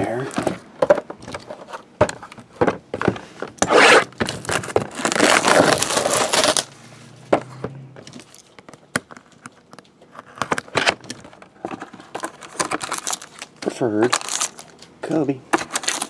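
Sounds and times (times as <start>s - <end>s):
plastic wrapping tearing: 3.6s - 6.7s, 12.4s - 14.8s, 15.6s - 16.0s.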